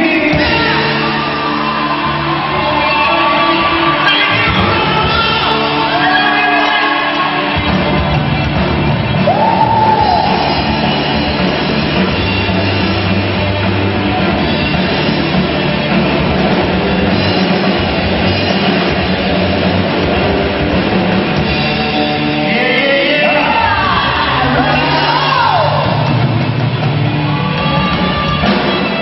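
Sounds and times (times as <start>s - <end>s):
sung vocals: 0.0s - 7.8s, 22.1s - 26.2s
drum kit: 0.0s - 29.0s
electric guitars: 0.0s - 29.0s.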